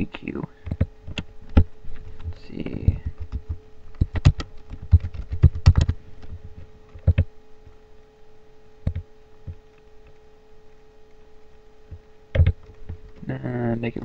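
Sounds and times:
faint steady hum: 0.0s - 14.0s
keyboard typing: 2.8s - 6.0s, 7.0s - 7.3s.

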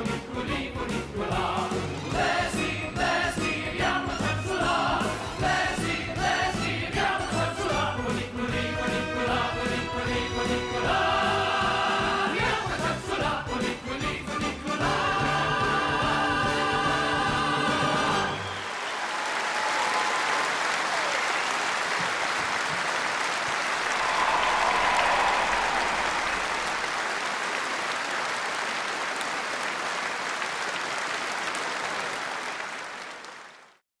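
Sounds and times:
vocal group final chord with band: 0.3s - 18.4s
audience applauding: 17.6s - 33.8s.

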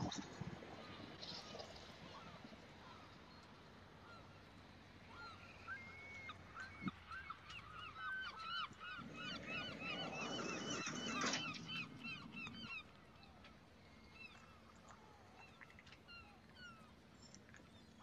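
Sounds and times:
flock of birds calling: 5.1s - 12.9s.

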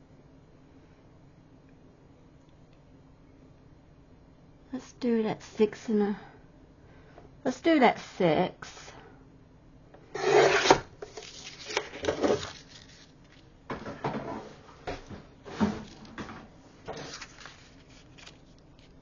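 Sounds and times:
paper rustling: 10.6s - 13.5s, 14.9s - 19.0s.

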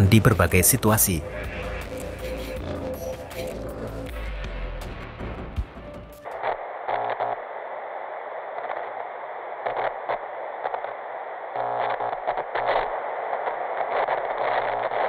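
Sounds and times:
crackling buzzing glitch bursts: 0.0s - 15.0s
static hiss: 0.0s - 15.0s.

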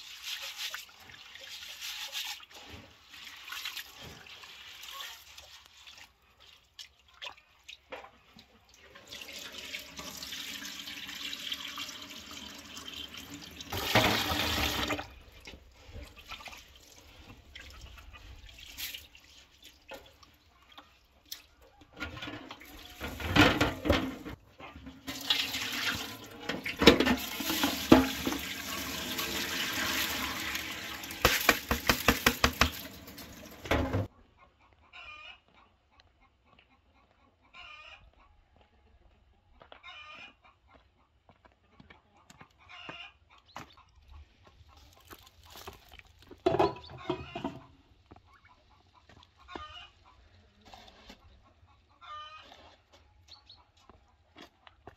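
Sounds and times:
water swishing and splashing: 12.6s - 21.4s, 25.1s - 34.1s
tap running: 31.0s - 34.1s.

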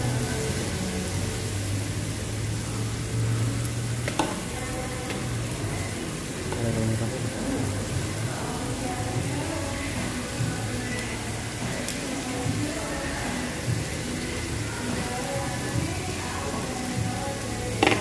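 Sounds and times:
meat sizzling on grill pan: 0.0s - 18.0s
utensil clicking on pan: 17.8s - 18.0s.

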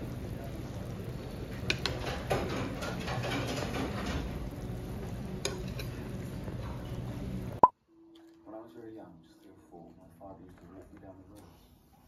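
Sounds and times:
soup sizzling and bubbling: 0.0s - 7.7s.

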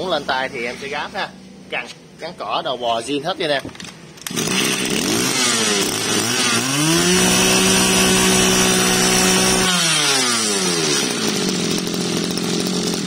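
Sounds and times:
brush cutter engine revving: 3.4s - 13.0s.

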